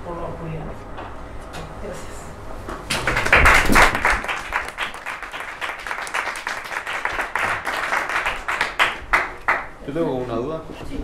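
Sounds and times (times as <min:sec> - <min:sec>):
audience applauding: 0:02.9 - 0:09.8.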